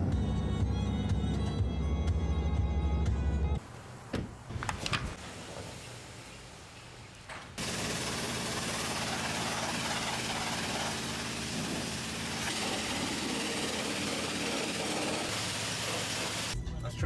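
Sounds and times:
pressure washer water blasting: 0:07.6 - 0:16.6.

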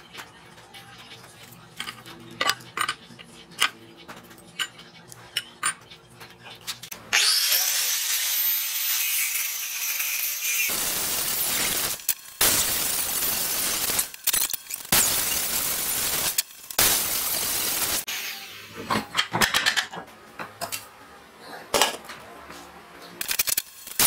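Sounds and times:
grinder disc cutting steel: 0:06.9 - 0:18.5, 0:23.2 - 0:24.0
angle grinder whining: 0:07.0 - 0:18.5.

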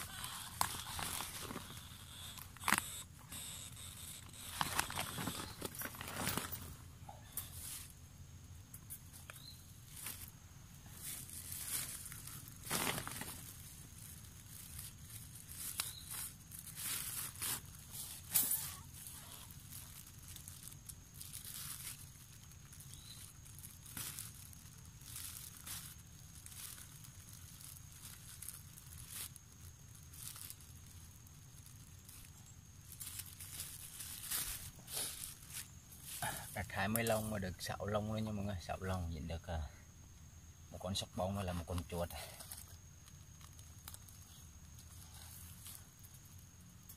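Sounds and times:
plastic bag crinkling: 0:00.0 - 0:06.9, 0:10.9 - 0:36.3.

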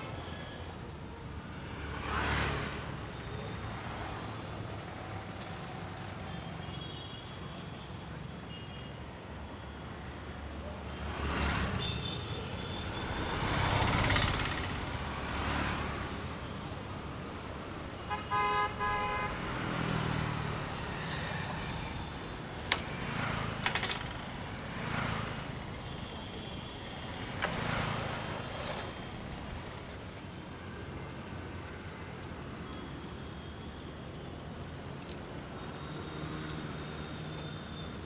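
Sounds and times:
vehicles passing: 0:00.0 - 0:06.3, 0:09.2 - 0:38.0
vehicle horn tooting: 0:18.1 - 0:19.4.

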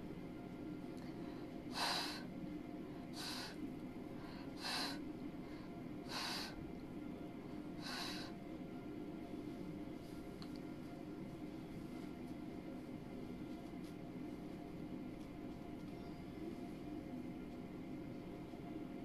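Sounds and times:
sharp puffs of breath: 0:01.7 - 0:02.2, 0:03.1 - 0:03.6, 0:04.3 - 0:05.0, 0:06.1 - 0:06.6, 0:07.8 - 0:08.3.

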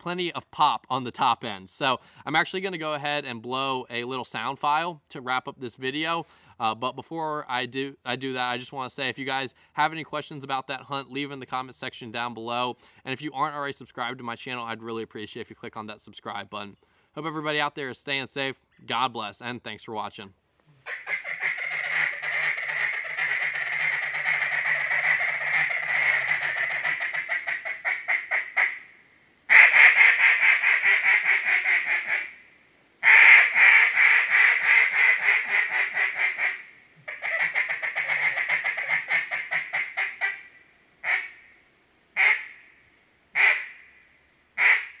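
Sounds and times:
duck call quacks: 0:20.8 - 0:28.9, 0:29.5 - 0:32.4, 0:33.0 - 0:41.4, 0:42.2 - 0:42.6, 0:43.4 - 0:43.8, 0:44.6 - 0:45.0
duck call feed chatter: 0:20.9 - 0:28.8, 0:29.5 - 0:32.3, 0:33.0 - 0:40.4, 0:42.2 - 0:42.4, 0:43.4 - 0:43.7, 0:44.6 - 0:44.9.

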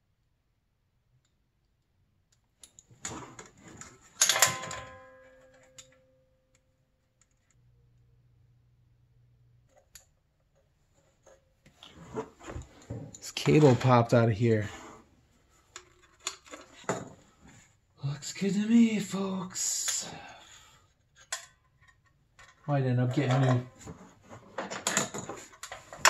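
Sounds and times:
metal tools clicking and rattling: 0:04.2 - 0:05.0, 0:23.2 - 0:23.8.

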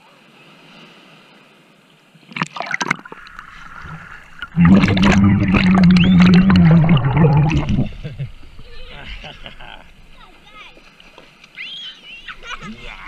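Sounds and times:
seawater splashing: 0:02.2 - 0:13.0
underwater churning and gurgling: 0:02.3 - 0:10.8.

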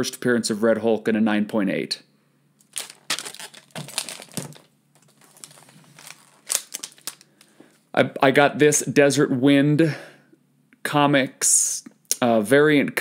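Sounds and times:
plastic cases clicking and knocking: 0:02.6 - 0:07.2.

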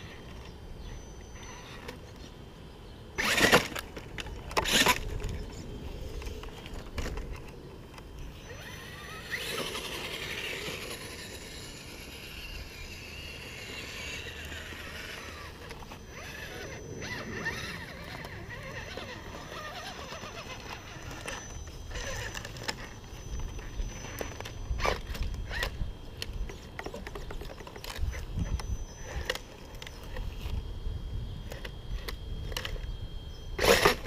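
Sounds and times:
electric motor whirring: 0:00.0 - 0:34.0
scraping bursts: 0:03.2 - 0:07.6, 0:08.3 - 0:25.8, 0:33.6 - 0:34.0.

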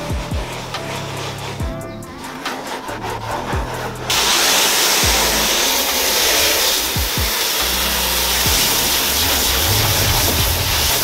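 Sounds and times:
hose spraying water on fibreglass: 0:04.0 - 0:11.0.

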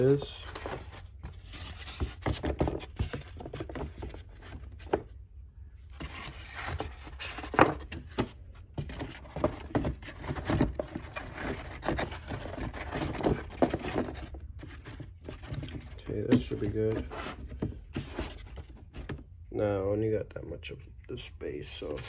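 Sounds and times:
cardboard scraping and rubbing: 0:00.0 - 0:05.2, 0:05.8 - 0:19.2.

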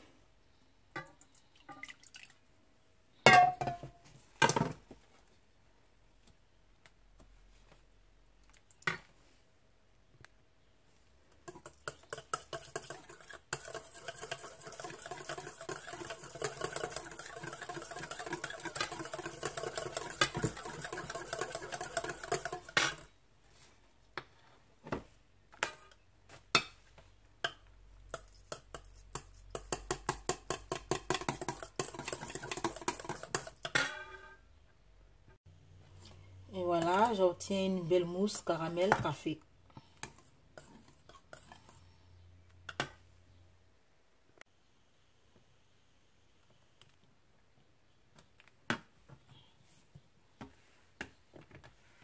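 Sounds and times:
whisk rattling against metal bowl: 0:11.4 - 0:23.1, 0:28.1 - 0:33.8
whisk tapping bowl: 0:11.4 - 0:23.1, 0:27.4 - 0:33.7.

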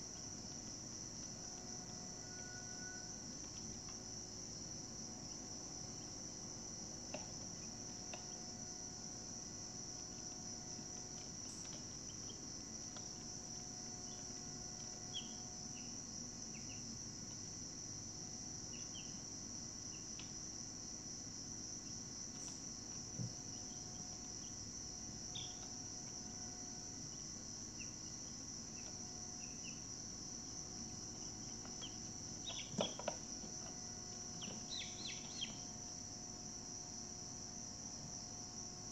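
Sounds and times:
high-pitched insect chorus trilling: 0:00.0 - 0:38.9.

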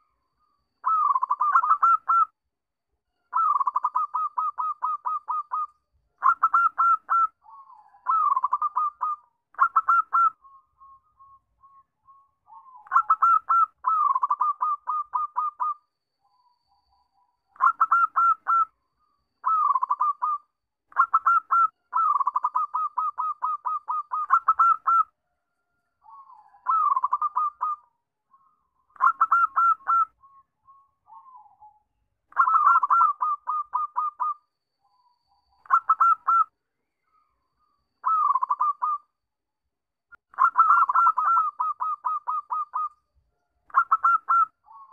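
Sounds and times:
dove cooing in staccato notes: 0:00.8 - 0:02.3, 0:03.3 - 0:10.4, 0:12.5 - 0:15.8, 0:17.6 - 0:18.7, 0:19.4 - 0:25.1, 0:26.1 - 0:27.8, 0:29.0 - 0:30.1, 0:32.3 - 0:34.4, 0:35.6 - 0:36.5, 0:38.0 - 0:39.0, 0:40.4 - 0:42.9, 0:43.7 - 0:44.9.

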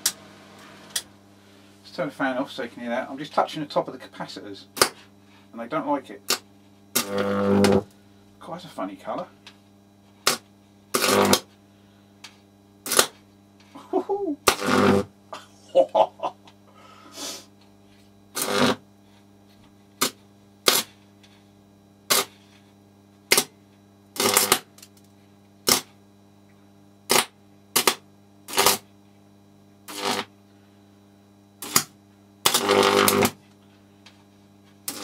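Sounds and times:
transformer mains hum: 0:00.0 - 0:35.0
high-voltage arcing bursts: 0:06.2 - 0:07.9, 0:10.2 - 0:11.5, 0:12.8 - 0:13.2, 0:14.4 - 0:15.1, 0:18.3 - 0:18.8, 0:20.0 - 0:21.0, 0:22.1 - 0:22.4, 0:23.3 - 0:23.5, 0:24.2 - 0:24.8, 0:25.6 - 0:26.0, 0:27.1 - 0:28.9, 0:29.9 - 0:30.3, 0:31.6 - 0:33.4.

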